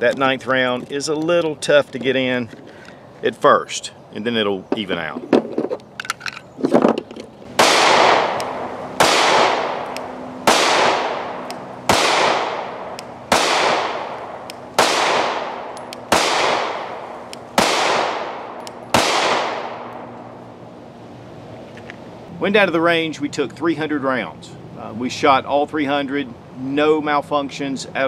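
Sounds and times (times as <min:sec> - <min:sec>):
pistol shots with echo: 0:07.6 - 0:20.0.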